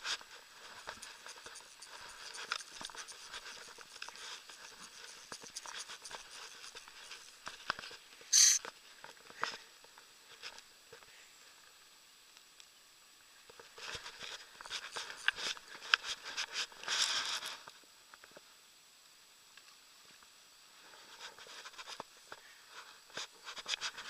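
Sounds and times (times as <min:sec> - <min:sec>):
short rubbing scrape: 0:08.3 - 0:08.6.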